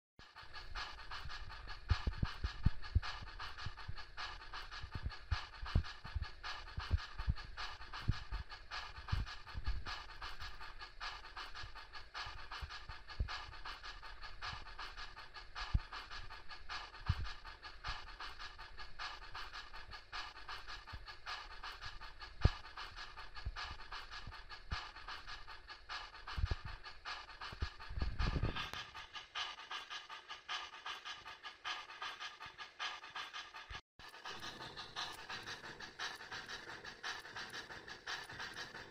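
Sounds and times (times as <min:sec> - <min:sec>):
model train steam chuffs: 0:00.2 - 0:38.9
low rumble: 0:27.6 - 0:28.8.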